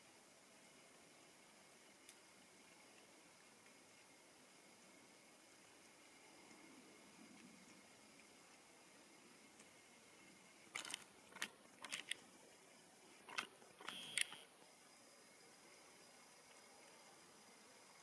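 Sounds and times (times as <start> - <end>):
badgers crunching feed: 10.7 - 12.2.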